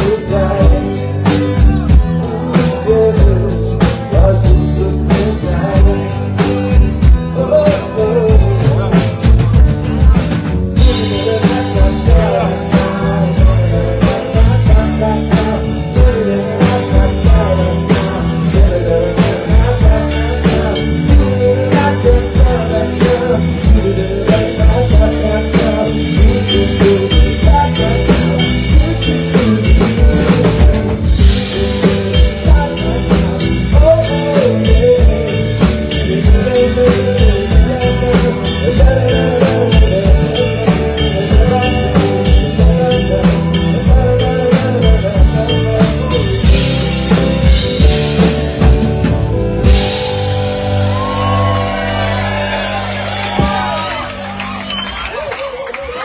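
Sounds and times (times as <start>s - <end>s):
drum kit beat: 0.0s - 56.0s
guitars: 0.0s - 56.0s
live rock band playing: 0.0s - 56.0s.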